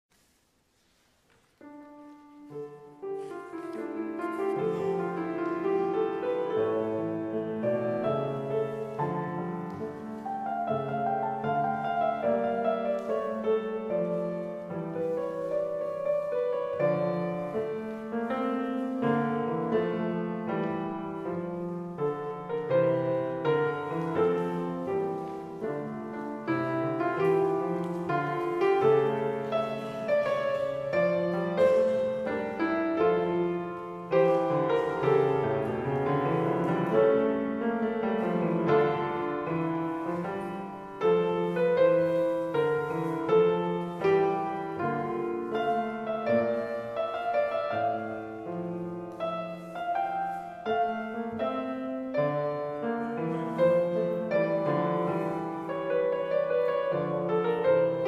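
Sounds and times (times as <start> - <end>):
solo piano music: 1.4 - 58.0.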